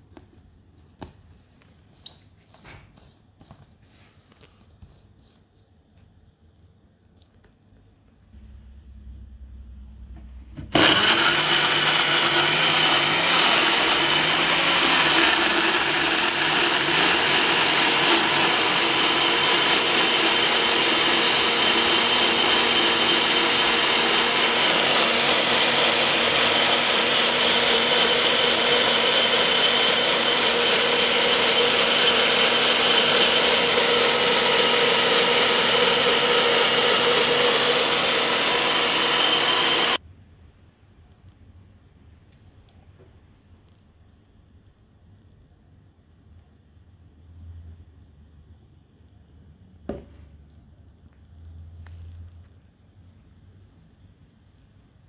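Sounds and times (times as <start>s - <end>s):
blender motor whining: 10.7s - 40.0s.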